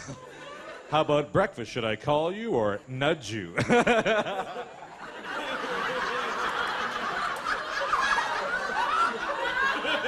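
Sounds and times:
audience laughing: 0.0 - 1.4, 3.5 - 10.0.

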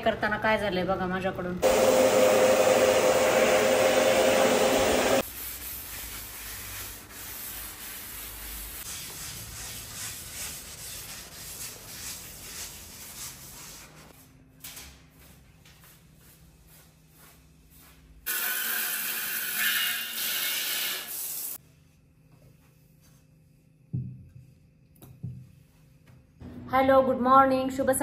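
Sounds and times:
loud motor whir: 1.6 - 5.2
faint rubbing strokes: 5.2 - 14.1.

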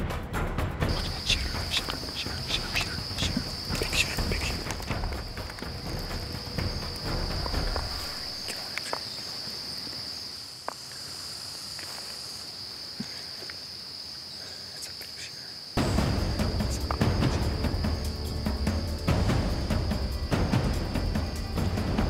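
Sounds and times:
insects chorus: 0.3 - 22.0
faint ticks and rustling: 7.0 - 10.0
loud music: 15.8 - 22.0.

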